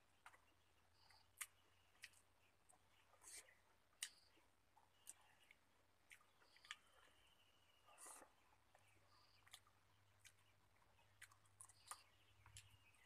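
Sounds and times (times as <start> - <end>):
chewing: 0.2 - 13.0.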